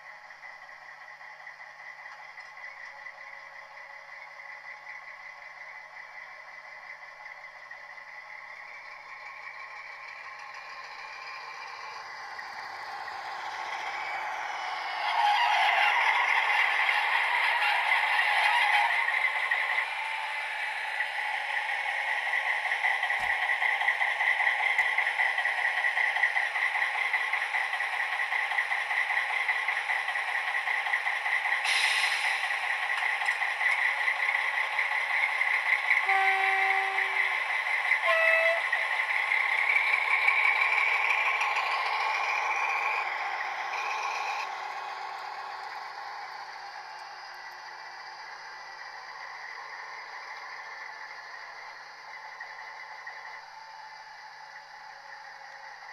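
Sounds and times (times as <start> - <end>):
diesel engine drone from speaker: 0.0 - 55.9
short hiss: 31.6 - 32.5
brief horn tones: 36.0 - 37.2, 38.0 - 38.8.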